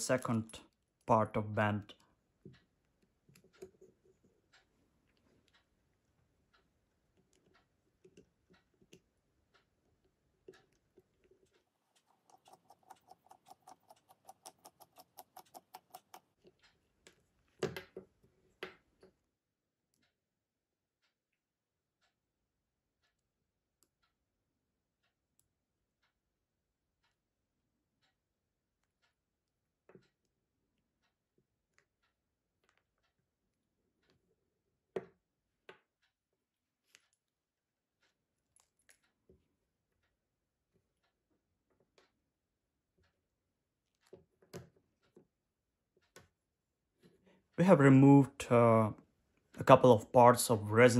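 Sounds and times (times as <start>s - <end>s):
small parts clicking on tabletop: 11.5s - 16.8s.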